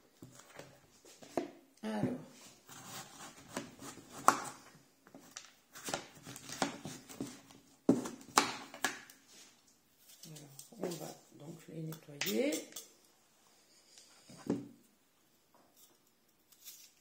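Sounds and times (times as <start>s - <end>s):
knife cutting squash: 2.7s - 4.6s.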